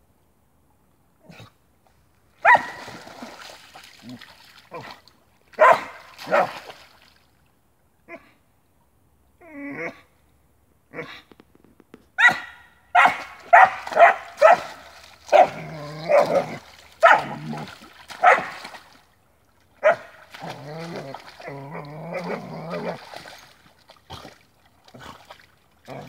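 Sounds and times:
dog barking: 0:02.4 - 0:02.8, 0:05.6 - 0:06.6, 0:12.2 - 0:16.4, 0:17.0 - 0:17.4, 0:18.2 - 0:18.6, 0:19.8 - 0:20.1.

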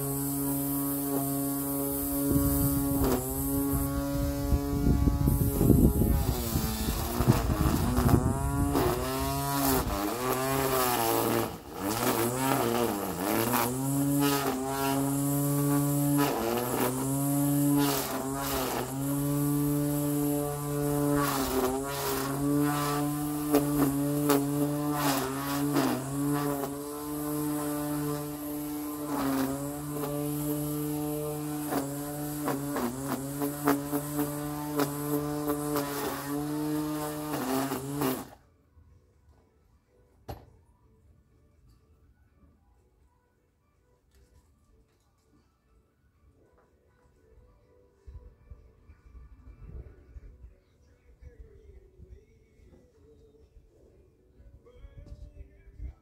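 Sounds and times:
grass trimmer motor whine: 0:00.0 - 0:38.4.

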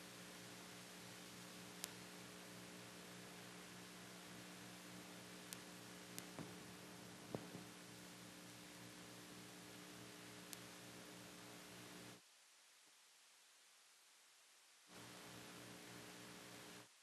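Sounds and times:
electrical hum and tape hiss: 0:00.0 - 0:17.0
faint clicks: 0:01.8 - 0:02.1, 0:05.5 - 0:06.6, 0:10.5 - 0:10.8.

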